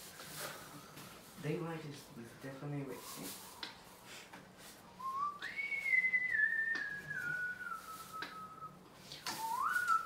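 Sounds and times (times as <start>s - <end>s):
person whistling: 5.0s - 10.0s.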